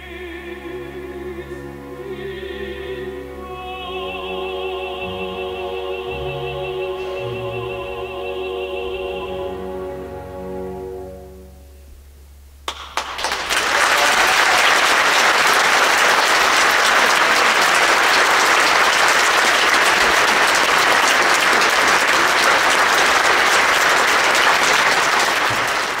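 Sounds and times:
audience applauding: 12.7s - 26.0s.

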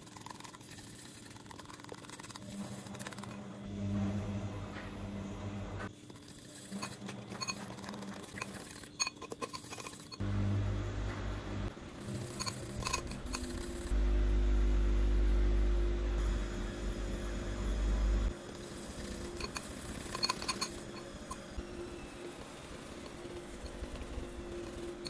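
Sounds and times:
fork clinking against ceramic bowl: 12.2s - 13.6s, 19.4s - 21.1s.

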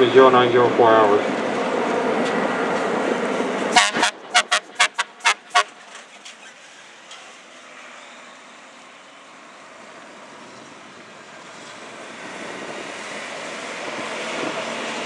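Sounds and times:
truck driving away: 0.0s - 15.0s
fire truck horn blasts: 3.7s - 5.8s.

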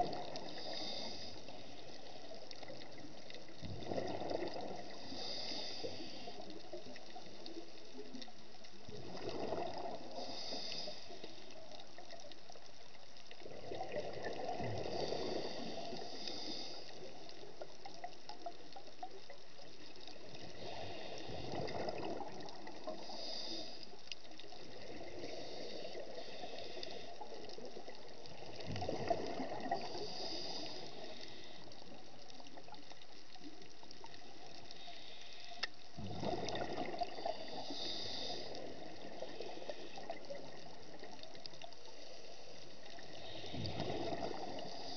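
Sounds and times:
regulator hiss: 0.4s - 2.2s, 4.9s - 6.4s, 29.8s - 31.8s
diver exhaling bubbles: 36.0s - 38.8s, 43.6s - 44.9s.

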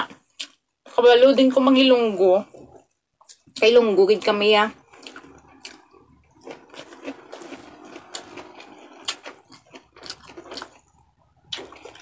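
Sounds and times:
person chewing food: 0.1s - 0.6s, 4.8s - 12.0s.

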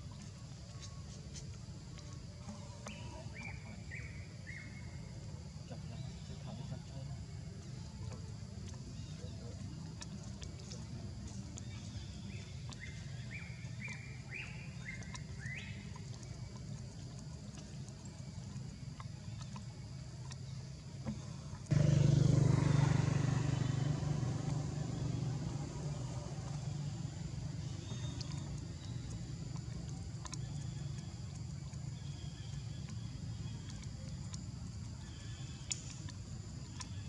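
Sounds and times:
low motor hum: 0.0s - 37.0s
loud engine noise: 21.6s - 27.8s.

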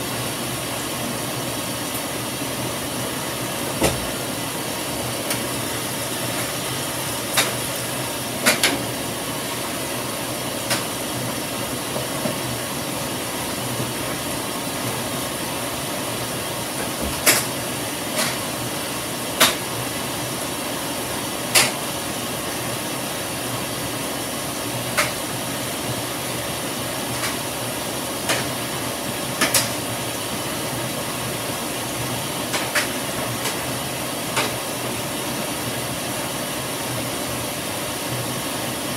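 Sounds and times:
water running into washing machine: 0.0s - 38.9s.

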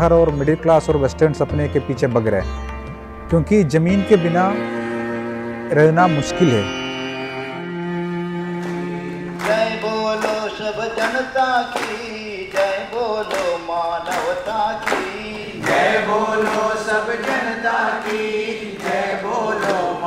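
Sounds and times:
hand claps: 8.6s - 20.0s
voices singing along: 8.9s - 20.0s
man singing: 9.2s - 17.9s.

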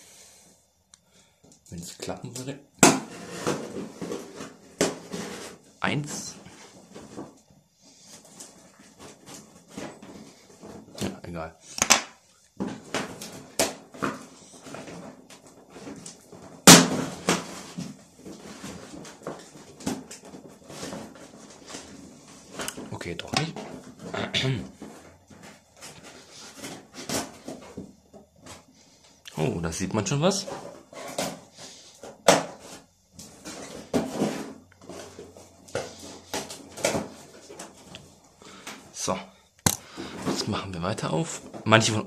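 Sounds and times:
tape and cardboard crackling: 2.2s - 11.2s, 11.8s - 28.7s, 30.2s - 38.8s
loud sharp crack: 16.6s - 17.1s.

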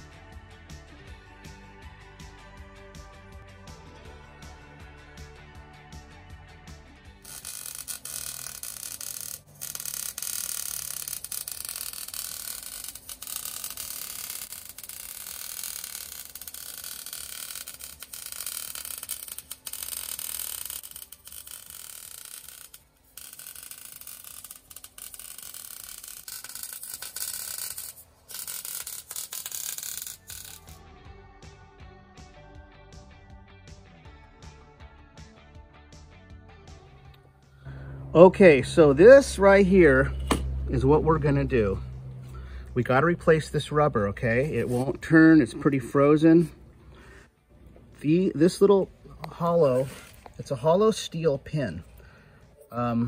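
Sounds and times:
welding arc crackling hiss: 7.2s - 30.8s.

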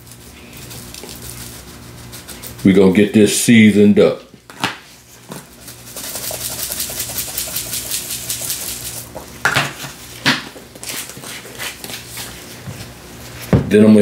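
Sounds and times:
granules rattling in shaker: 0.0s - 3.0s, 5.3s - 9.4s.

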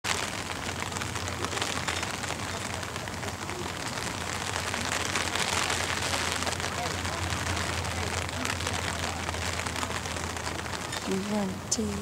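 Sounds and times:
fine rapid crackle: 0.0s - 12.0s
steady hiss: 0.0s - 12.0s.

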